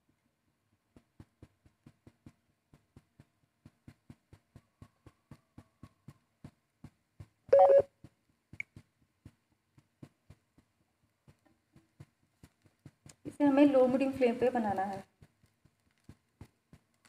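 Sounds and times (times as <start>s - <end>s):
loud electronic beep: 7.6s - 7.8s
faint low ticks: 8.5s - 8.9s.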